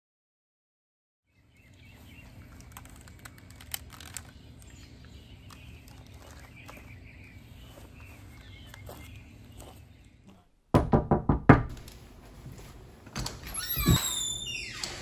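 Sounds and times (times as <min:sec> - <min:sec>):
birds chirping: 0:01.3 - 0:10.6.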